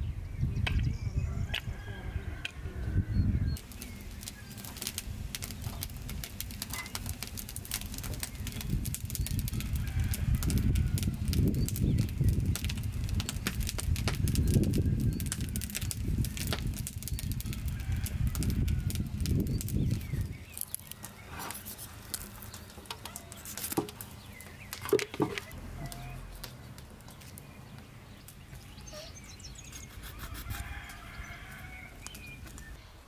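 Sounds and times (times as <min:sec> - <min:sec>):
wind rumbling on microphone: 0:00.0 - 0:23.6, 0:24.2 - 0:33.0
faint bird chirps: 0:28.5 - 0:31.4.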